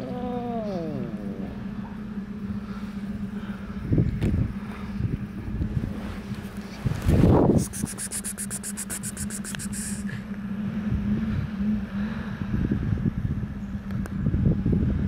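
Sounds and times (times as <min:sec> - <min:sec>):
steady low hum: 0:00.0 - 0:15.0
wind rumbling on microphone: 0:02.4 - 0:15.0
fast high ticking: 0:07.6 - 0:10.0.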